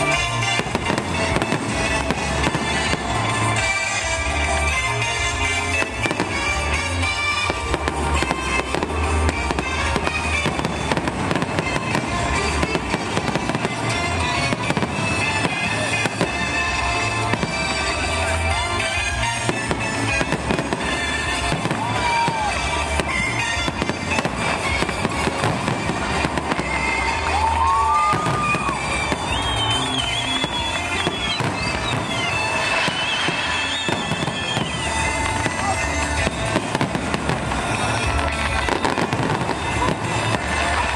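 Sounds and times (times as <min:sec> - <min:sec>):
fireworks bursting and crackling: 0:00.0 - 0:40.9
music playing: 0:00.0 - 0:40.9.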